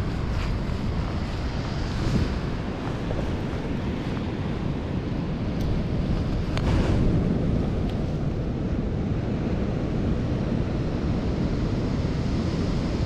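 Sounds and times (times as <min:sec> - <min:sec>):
sea surf washing on beach: 0:00.0 - 0:13.0
wind buffeting microphone: 0:00.0 - 0:13.0.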